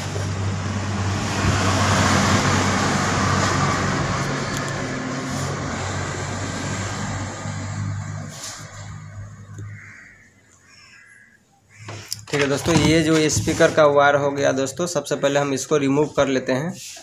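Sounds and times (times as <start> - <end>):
rushing noise: 0.0 - 9.4.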